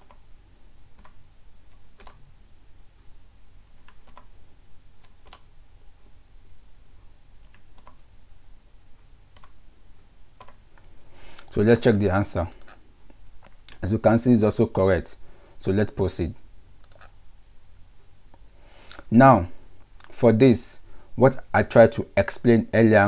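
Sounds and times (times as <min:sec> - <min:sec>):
faint low hum: 0:00.0 - 0:23.0
computer keyboard keystrokes: 0:00.9 - 0:02.2, 0:03.8 - 0:04.3, 0:05.0 - 0:05.5, 0:07.4 - 0:08.0, 0:09.3 - 0:09.6, 0:10.4 - 0:10.6, 0:16.8 - 0:17.2.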